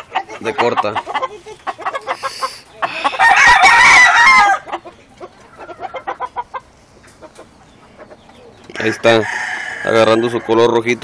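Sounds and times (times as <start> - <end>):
rooster crowing: 3.0 - 4.7, 8.8 - 10.7.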